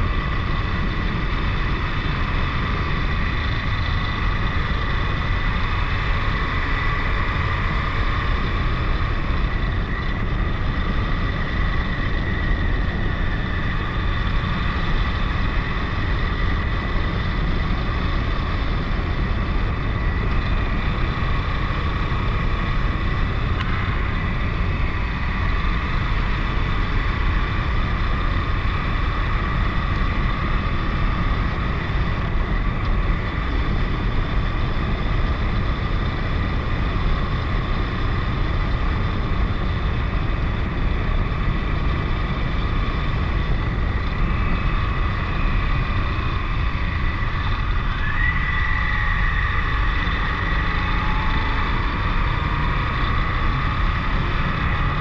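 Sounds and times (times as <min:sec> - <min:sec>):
motorcycle engine: 0:00.0 - 0:55.0
wind and road noise: 0:00.0 - 0:55.0.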